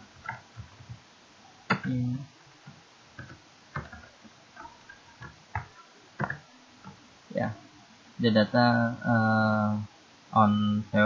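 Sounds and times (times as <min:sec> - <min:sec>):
keyboard keys clicking: 0:02.6 - 0:07.0.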